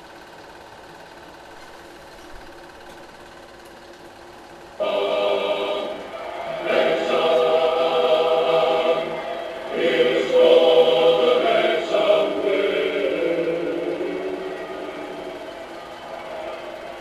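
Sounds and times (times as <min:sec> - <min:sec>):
voices singing in unison: 0:04.8 - 0:17.0.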